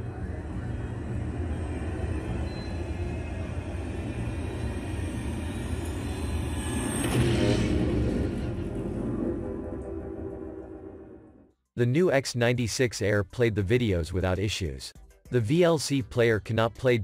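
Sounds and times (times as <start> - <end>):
dark ominous music: 0.0 - 11.5.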